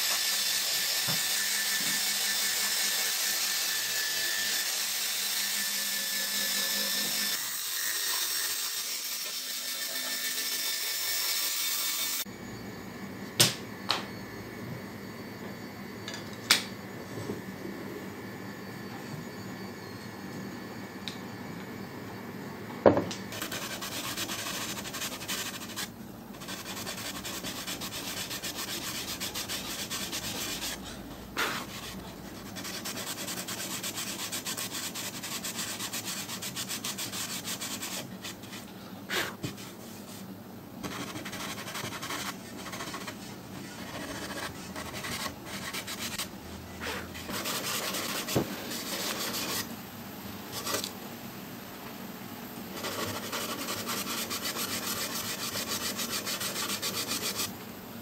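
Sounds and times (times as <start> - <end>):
wood rubbed by hand: 52.8 - 57.5.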